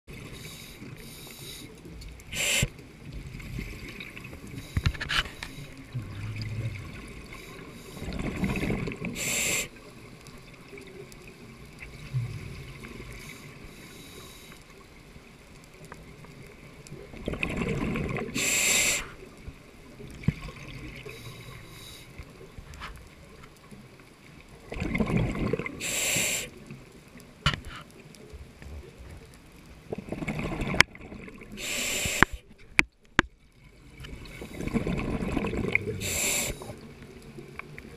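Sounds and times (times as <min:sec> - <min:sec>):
faint underwater hiss: 0:00.1 - 0:32.8, 0:33.6 - 0:37.9
diver exhaling bubbles: 0:05.9 - 0:07.4, 0:24.7 - 0:26.4, 0:29.9 - 0:32.3, 0:34.2 - 0:36.8.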